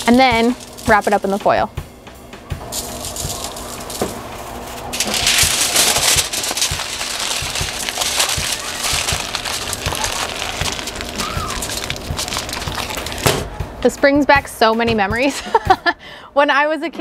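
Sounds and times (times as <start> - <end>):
aluminium foil crinkling: 0.0 - 1.6, 2.6 - 13.5.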